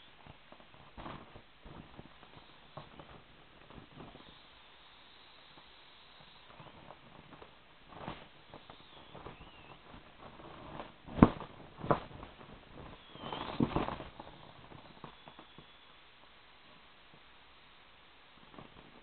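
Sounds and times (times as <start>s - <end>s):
inflatable plastic crinkling: 6.6s - 15.7s.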